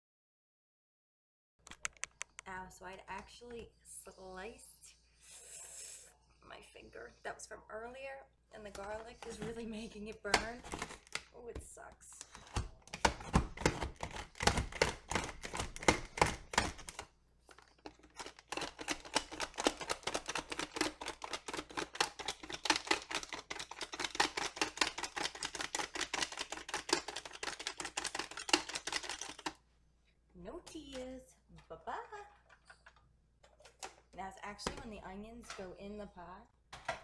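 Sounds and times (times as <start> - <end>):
food chopper blades clicking: 18.1 - 29.5.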